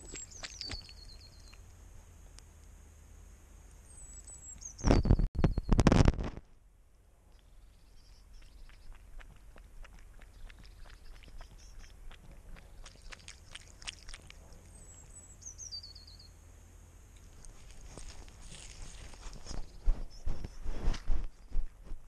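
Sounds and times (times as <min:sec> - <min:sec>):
bird call: 0:00.0 - 0:01.6
cat lapping water: 0:08.3 - 0:15.1
cat steps on gravel: 0:17.3 - 0:22.0.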